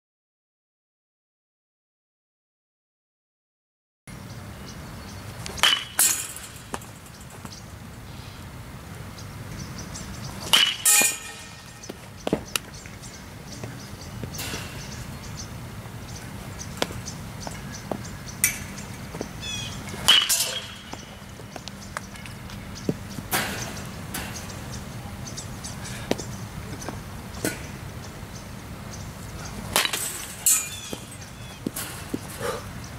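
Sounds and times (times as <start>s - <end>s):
metal bat pinging ball: 5.5s - 7.2s, 10.4s - 12.6s, 19.9s - 21.2s, 29.7s - 32.3s.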